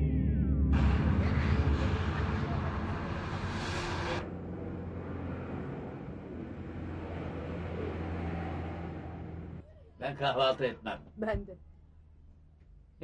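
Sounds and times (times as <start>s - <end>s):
low engine drone: 0.0s - 9.6s
loud rushing noise: 0.8s - 9.6s.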